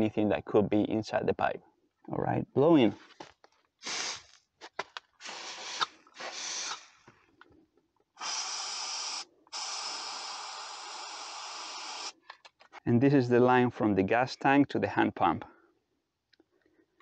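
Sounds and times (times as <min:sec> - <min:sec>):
compressed air hissing: 0:03.8 - 0:04.3, 0:05.2 - 0:07.0, 0:08.2 - 0:12.2.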